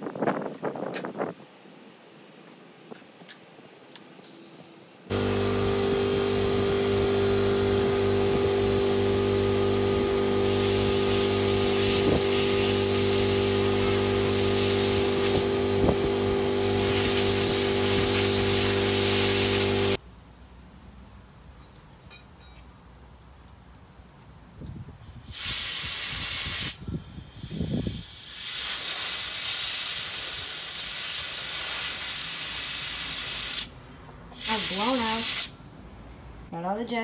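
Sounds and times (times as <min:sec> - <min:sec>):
air blow gun hissing: 0:04.2 - 0:20.0, 0:25.1 - 0:35.6
air compressor humming: 0:04.3 - 0:20.0, 0:25.1 - 0:33.7, 0:34.4 - 0:35.5.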